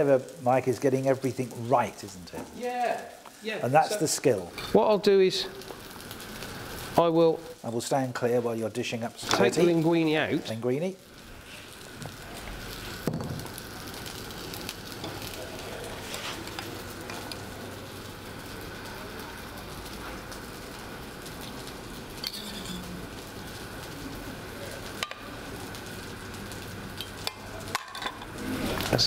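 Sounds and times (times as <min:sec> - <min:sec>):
steady low hiss: 0:00.0 - 0:29.0.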